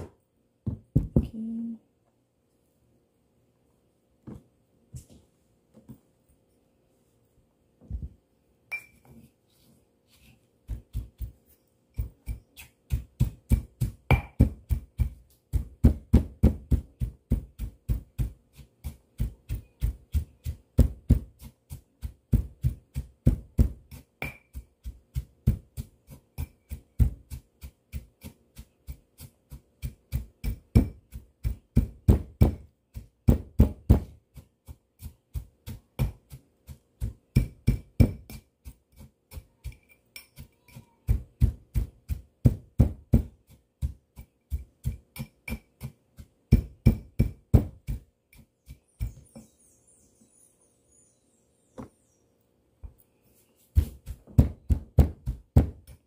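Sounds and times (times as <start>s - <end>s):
pestle pounding in stone mortar: 10.6s - 49.5s, 53.8s - 56.0s.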